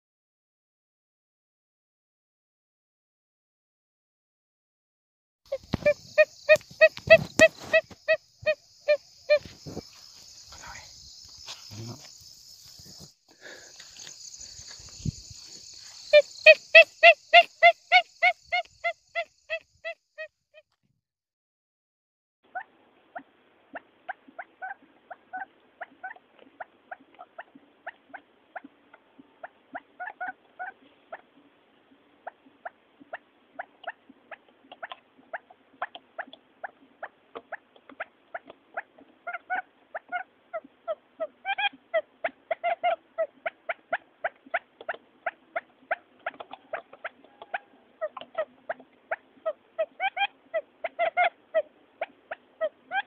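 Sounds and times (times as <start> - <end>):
quail chirping calls: 5.5 - 10.0, 15.9 - 20.6, 22.5 - 31.3, 32.2 - 53.0.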